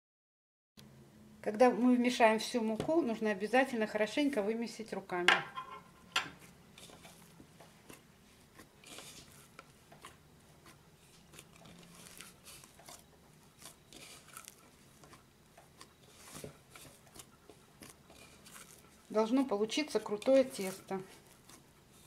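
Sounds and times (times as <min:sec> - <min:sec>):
hands kneading dough: 0:06.3 - 0:22.0.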